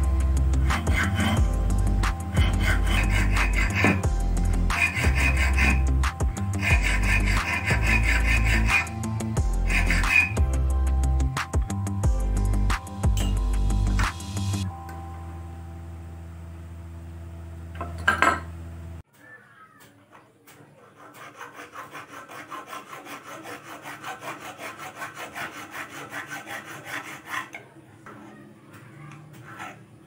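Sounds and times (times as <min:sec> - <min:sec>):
background music: 0:00.0 - 0:16.0
file rasping on steel nut: 0:00.6 - 0:01.5, 0:02.3 - 0:04.1, 0:04.7 - 0:08.9, 0:09.6 - 0:10.4, 0:20.8 - 0:27.6.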